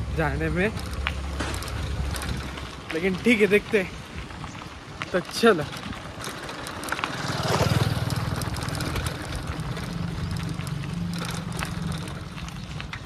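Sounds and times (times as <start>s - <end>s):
vehicle engine running: 6.1s - 12.8s.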